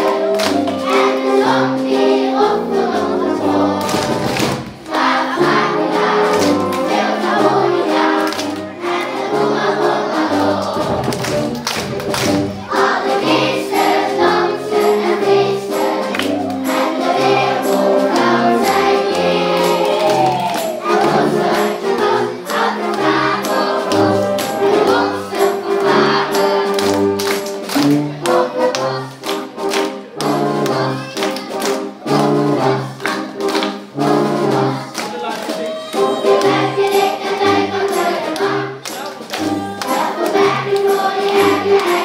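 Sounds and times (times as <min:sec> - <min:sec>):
children's choir singing: 0:00.0 - 0:42.0
fanfare band playing: 0:00.0 - 0:42.0.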